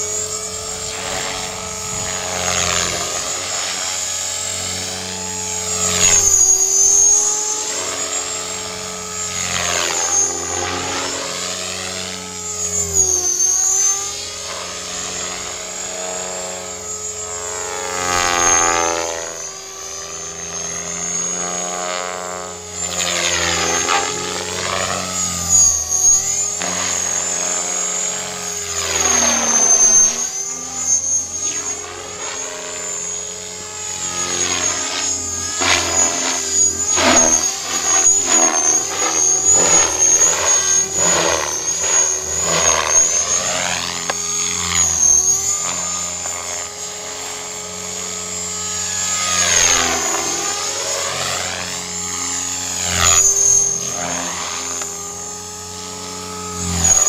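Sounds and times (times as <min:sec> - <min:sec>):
model helicopter motor whine: 0:00.0 - 0:57.0
rotor whoosh: 0:23.1 - 0:47.3.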